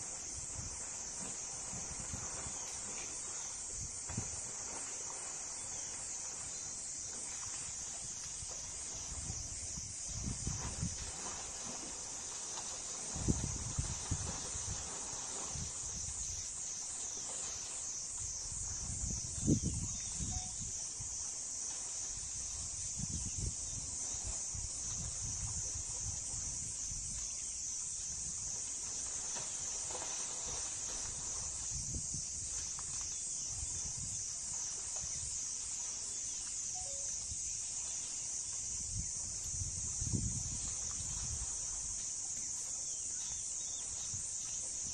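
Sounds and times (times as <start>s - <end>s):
wind rumble on microphone: 0.0s - 5.2s, 7.5s - 12.0s, 12.9s - 17.1s, 18.2s - 21.2s, 22.0s - 35.4s, 38.6s - 42.0s
insects chirring: 0.0s - 44.9s.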